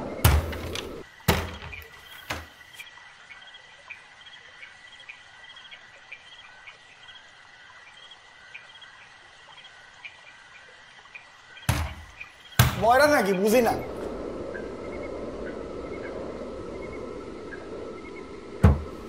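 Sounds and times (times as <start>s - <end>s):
crickets chirping: 0.0s - 19.0s
palm thumps on wooden door: 18.6s - 19.0s.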